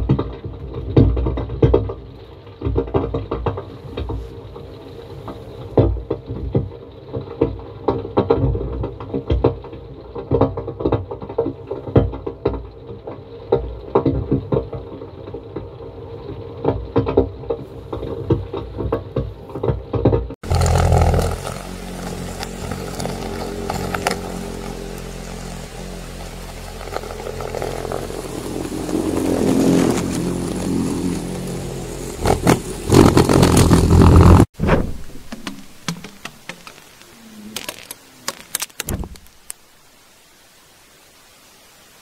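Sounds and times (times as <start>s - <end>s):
motor drone: 20.4s - 34.5s
faint hiss: 20.5s - 42.0s
scattered knocks and clicks: 35.1s - 37.0s.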